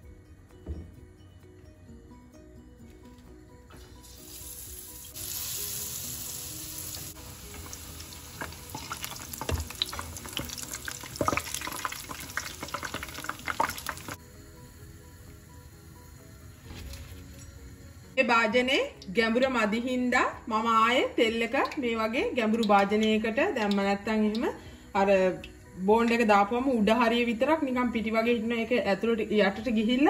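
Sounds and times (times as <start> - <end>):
food deep-frying in hot oil: 4.0 - 14.2.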